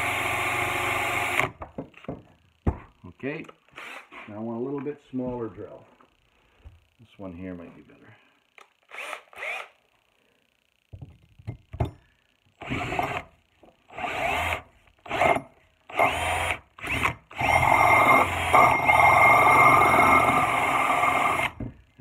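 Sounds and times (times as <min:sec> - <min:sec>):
electric drill whining: 0:00.0 - 0:01.6, 0:03.7 - 0:04.3, 0:08.9 - 0:09.8, 0:12.6 - 0:21.7
drill clicks: 0:08.6 - 0:09.7.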